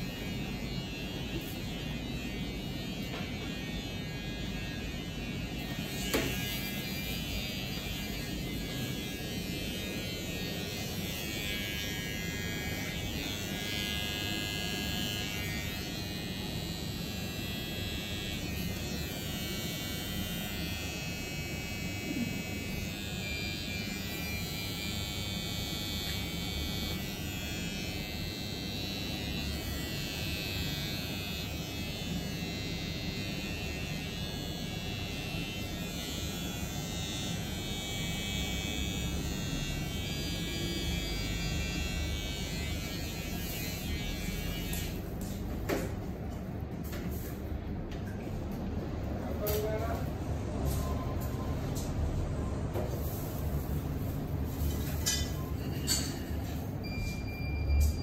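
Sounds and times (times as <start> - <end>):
electric hair clippers running: 0.0 - 45.9.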